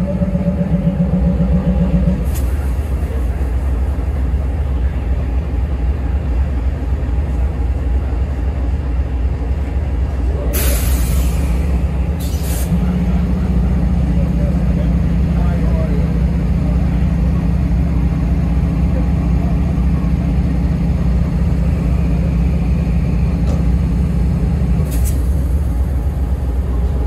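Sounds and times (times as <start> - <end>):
locomotive idling: 0.0 - 27.0
air brake hisses: 10.6 - 11.6, 12.2 - 12.7, 24.9 - 25.3.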